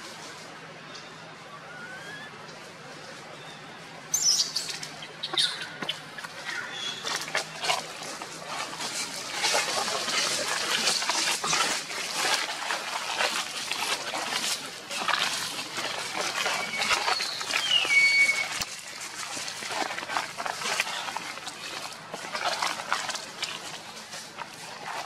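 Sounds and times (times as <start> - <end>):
dry leaves crackling and rustling: 0.0 - 25.0
monkey high squeaks: 16.6 - 18.6.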